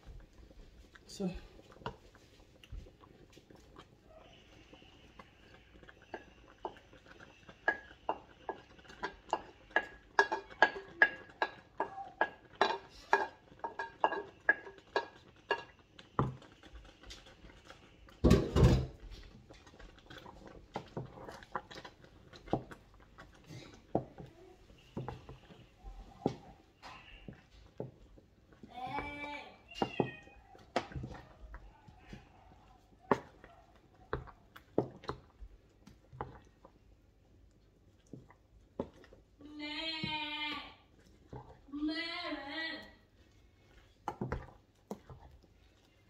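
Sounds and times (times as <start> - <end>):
utensil clinking against metal pot: 7.6 - 16.4.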